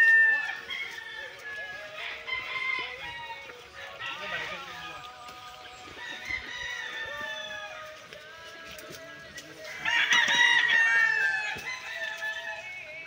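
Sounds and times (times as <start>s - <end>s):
rooster crowing: 0.0s - 4.9s, 5.9s - 7.9s, 9.6s - 12.9s
chicken calls: 0.0s - 13.0s.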